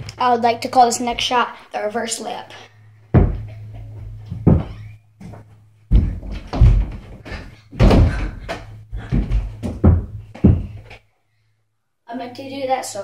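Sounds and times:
ball striking a door hoop: 0:03.1 - 0:05.0, 0:05.9 - 0:11.0
running and jumping footsteps: 0:03.1 - 0:11.0.

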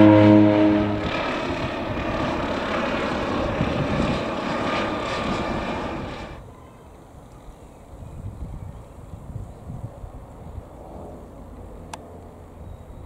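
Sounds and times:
helicopter flying overhead: 0:00.0 - 0:06.9.

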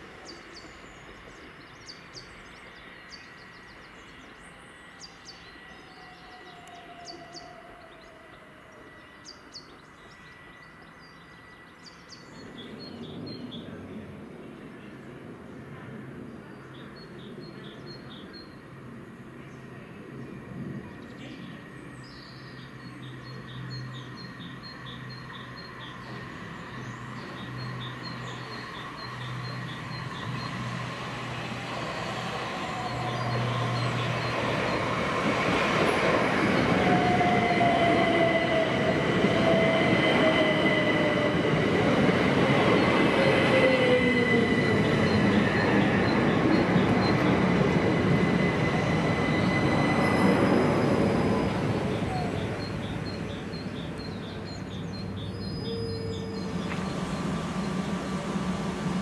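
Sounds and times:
train wheels and motors rumbling: 0:18.8 - 0:59.0.

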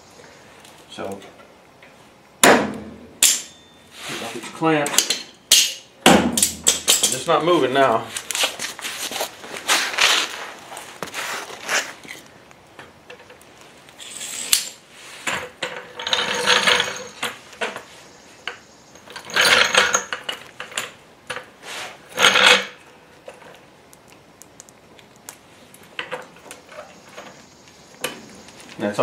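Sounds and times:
metal clanking and rattling: 0:15.3 - 0:17.8, 0:19.0 - 0:21.0.

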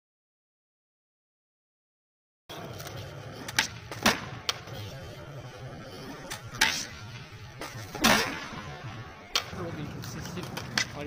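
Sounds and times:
skateboard clacks on concrete: 0:09.3 - 0:11.0.

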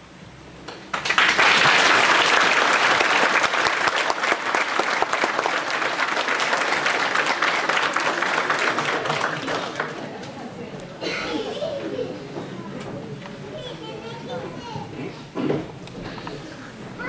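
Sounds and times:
audience applauding: 0:00.7 - 0:10.3.

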